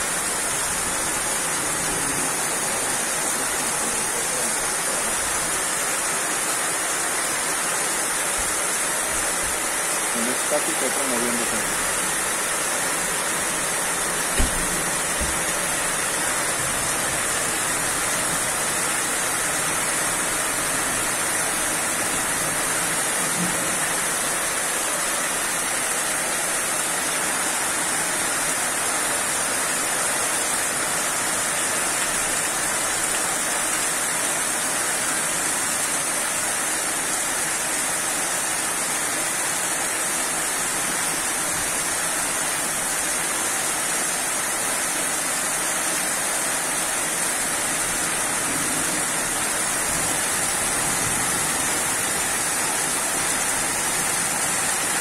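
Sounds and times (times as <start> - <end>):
heavy rain pouring: 0.0 - 55.0
sharp knock: 14.3 - 15.3.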